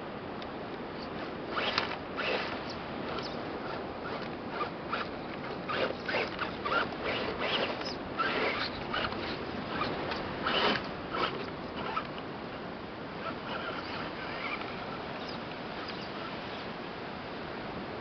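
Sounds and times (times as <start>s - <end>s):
toy car motor whirring: 1.0s - 12.1s, 13.2s - 16.1s
tyres scrabbling on stone: 1.0s - 12.1s.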